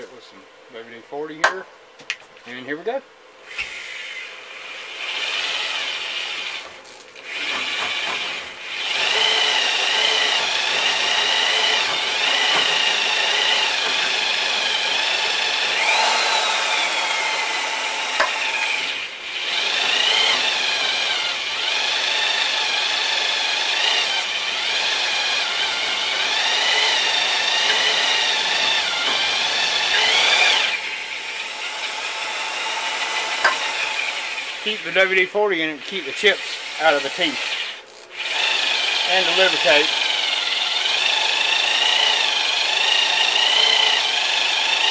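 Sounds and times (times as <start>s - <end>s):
electric drill motor under load: 3.5s - 35.1s, 35.8s - 44.9s
hole saw cutting metal squeal: 35.9s - 37.8s.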